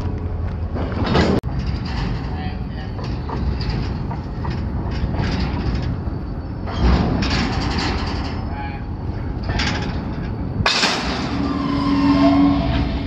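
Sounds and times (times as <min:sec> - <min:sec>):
freight car wheels rumbling on rail: 0:00.0 - 0:13.0
metallic clanks: 0:00.8 - 0:12.3
heavy clunk: 0:09.4 - 0:11.5.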